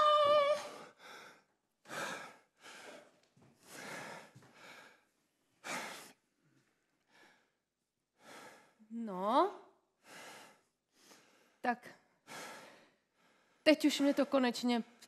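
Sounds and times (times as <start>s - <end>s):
man breathing heavily: 0.6s - 8.9s, 10.0s - 13.6s.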